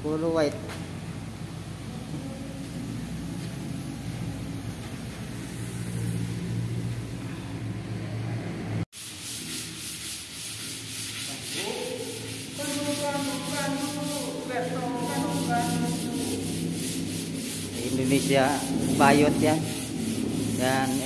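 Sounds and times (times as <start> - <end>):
steady low hum: 0.0 - 8.9, 9.8 - 21.0
sanding block rasping on board: 9.0 - 21.0.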